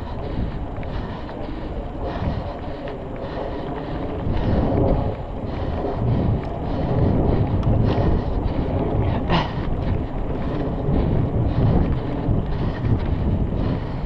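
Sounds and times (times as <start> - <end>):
bike clicks and rattles: 0.0 - 14.0
bike tyres rolling on dirt: 0.0 - 14.0
wind buffeting the microphone: 0.0 - 14.0.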